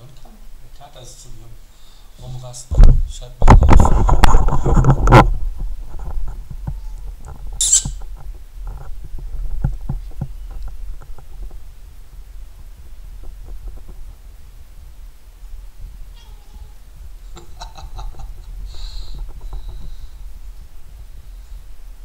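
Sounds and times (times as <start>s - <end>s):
cat hissing: 7.6s - 8.0s.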